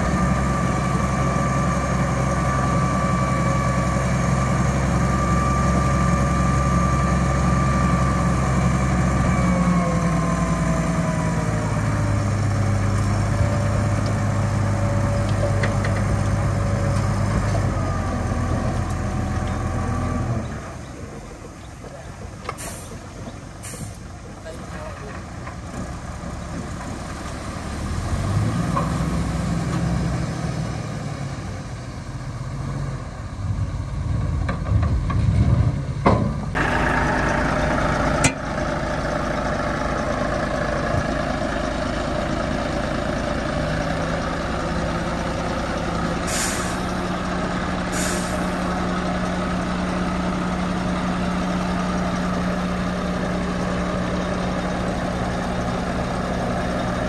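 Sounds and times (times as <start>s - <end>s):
diesel machinery engine: 0.0s - 57.0s
short hisses: 46.3s - 46.9s, 47.9s - 48.5s.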